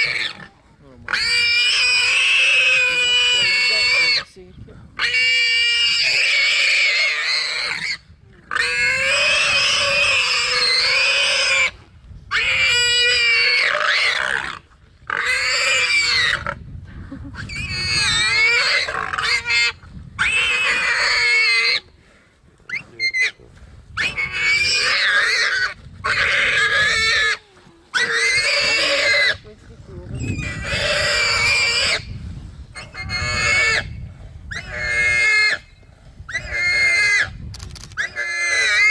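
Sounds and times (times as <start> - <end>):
warthog screaming: 0.0 - 0.5, 24.0 - 29.4, 32.8 - 33.9, 38.0 - 38.9.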